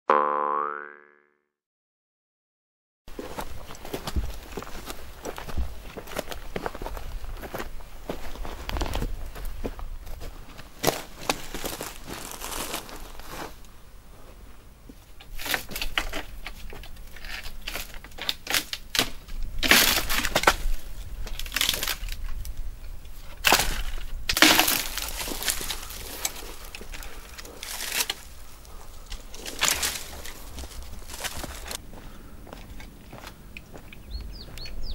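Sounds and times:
footsteps on stony ground: 3.1 - 13.7, 19.2 - 34.9
brush rustling: 3.1 - 13.8, 23.2 - 33.9
dry branches cracking and snapping: 10.8 - 13.1, 15.2 - 22.6, 23.3 - 31.8.

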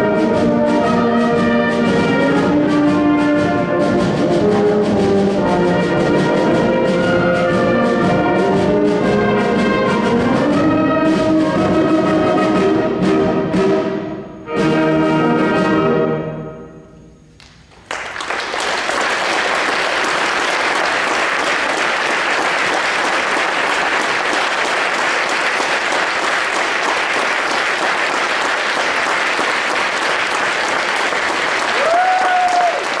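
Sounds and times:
brass band chord: 0.0 - 16.7
audience applauding: 17.4 - 33.0.

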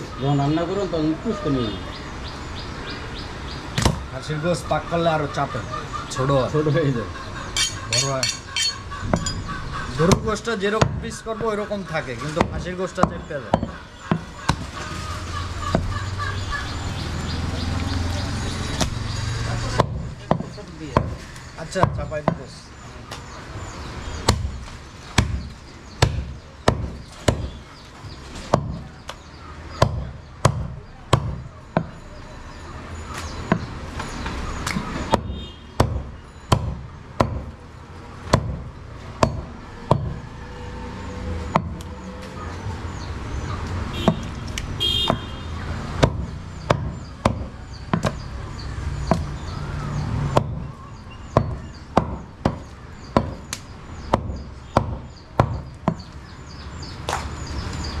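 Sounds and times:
cleaver chopping meat on wood: 3.8 - 4.1, 10.0 - 11.2, 12.2 - 14.7, 15.6 - 16.0, 19.7 - 22.5, 24.2 - 27.7, 28.3 - 32.0, 33.2 - 33.8, 34.6 - 37.6, 38.2 - 40.2, 41.4 - 41.9, 43.9 - 56.3.

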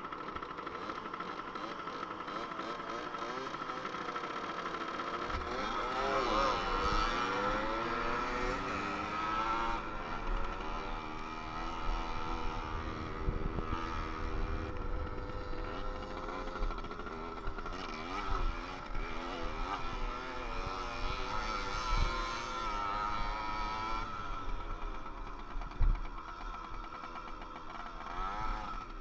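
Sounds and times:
two-stroke moped engine revving: 0.0 - 29.0
wind rumble on microphone: 12.0 - 15.6.

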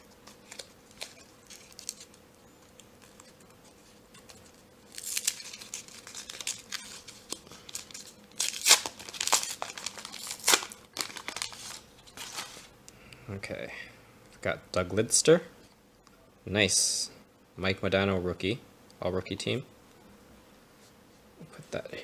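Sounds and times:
foil pack tearing: 0.0 - 2.2, 3.0 - 12.7
foil crinkling: 0.0 - 12.7.

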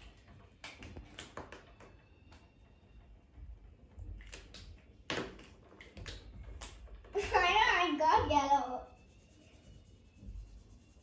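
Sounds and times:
markers scratching on paper: 5.8 - 11.0.

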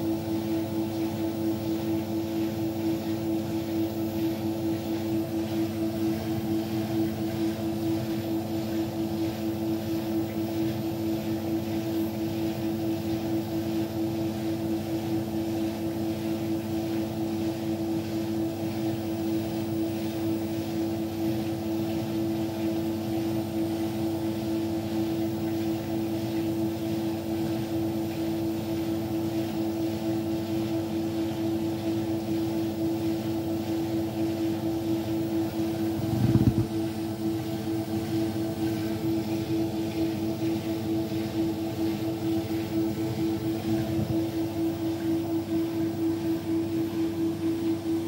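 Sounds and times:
washing machine drum spinning: 0.0 - 48.0
washing machine motor whine: 0.0 - 48.0.

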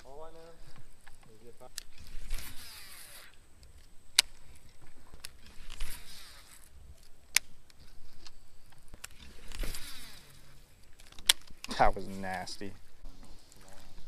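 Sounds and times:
fishing reel whirring swishes: 1.7 - 3.6, 4.3 - 11.4.

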